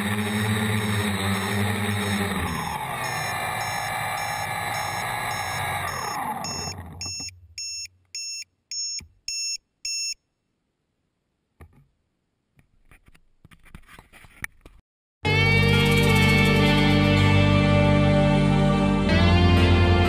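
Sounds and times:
drone motors winding down: 0:00.0 - 0:07.3, 0:15.3 - 0:20.0
short high electronic beeps: 0:03.0 - 0:10.2.

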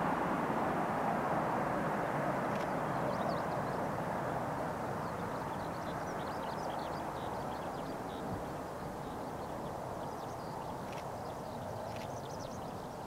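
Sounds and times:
jet engine noise: 0:00.0 - 0:13.0
small birds chirping: 0:02.5 - 0:04.3, 0:04.9 - 0:13.0.

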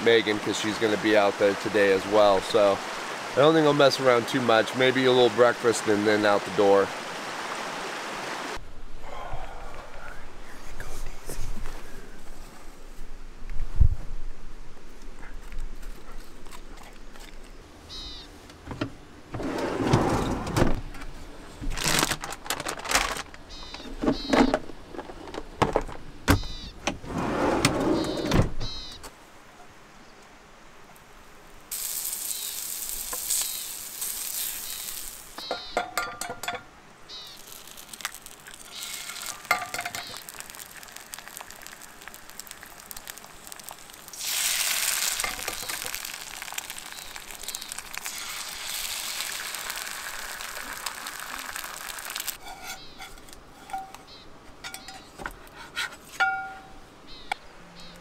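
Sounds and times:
eggs sizzling in a skillet: 0:31.7 - 0:36.5, 0:37.1 - 0:53.9
utensils and eggshell clinking: 0:37.4 - 0:54.0.

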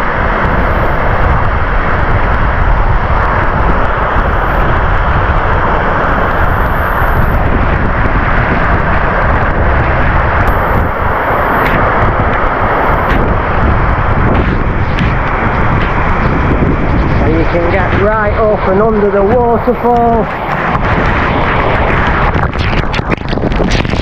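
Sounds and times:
waterfall pouring onto rocks: 0:11.8 - 0:24.0.

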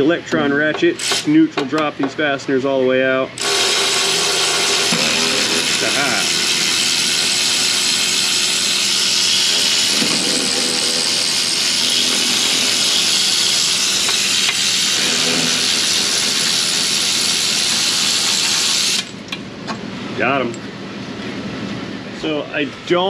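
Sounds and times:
electric ratchet hissing: 0:01.0 - 0:01.4, 0:03.4 - 0:19.2.

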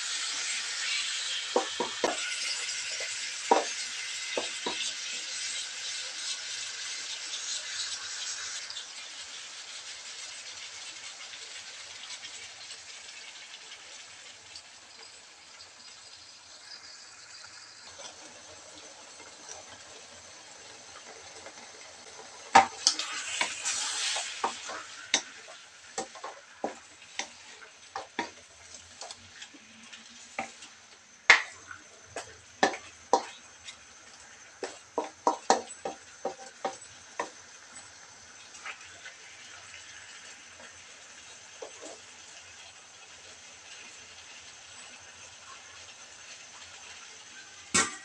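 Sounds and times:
chicken sizzling in a wok: 0:00.0 - 0:48.0
wooden spatula scraping wok: 0:21.4 - 0:37.4, 0:41.6 - 0:42.1.

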